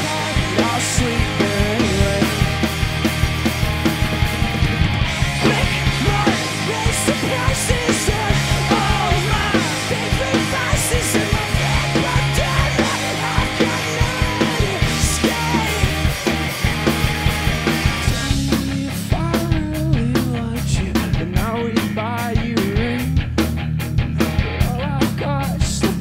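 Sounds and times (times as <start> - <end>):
rock band playing live: 0.0 - 26.0.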